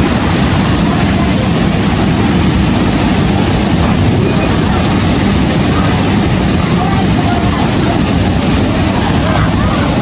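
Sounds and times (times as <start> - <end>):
waterfall rushing: 0.0 - 10.0.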